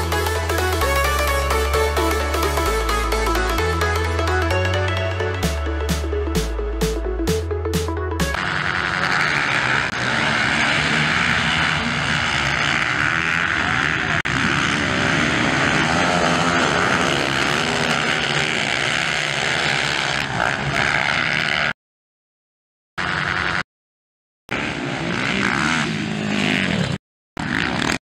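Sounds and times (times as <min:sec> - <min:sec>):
motocross bikes revving: 0:07.8 - 0:21.8, 0:23.0 - 0:23.6, 0:24.5 - 0:28.0.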